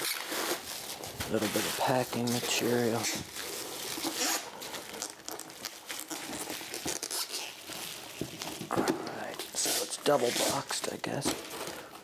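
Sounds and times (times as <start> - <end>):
cardboard rubbing and scraping: 0.0 - 4.5, 5.9 - 10.8
bubble wrap crinkling: 0.0 - 12.0.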